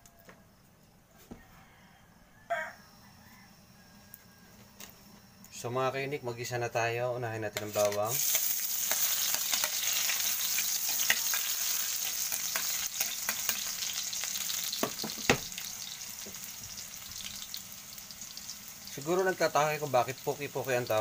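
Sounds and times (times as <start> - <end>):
garlic sizzling in oil: 7.6 - 21.0.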